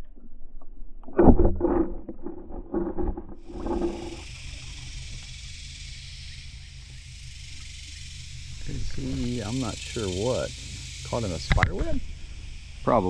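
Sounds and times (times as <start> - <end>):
high hiss of open air: 3.4 - 13.0.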